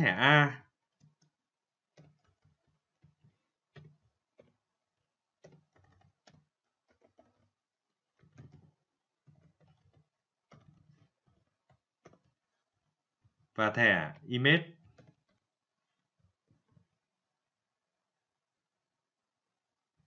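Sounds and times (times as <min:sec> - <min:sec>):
computer keyboard typing: 0:05.4 - 0:07.5, 0:08.2 - 0:12.3.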